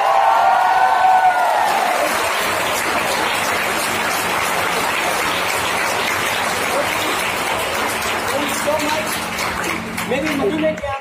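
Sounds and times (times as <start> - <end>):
audience applause: 0.0 - 10.9.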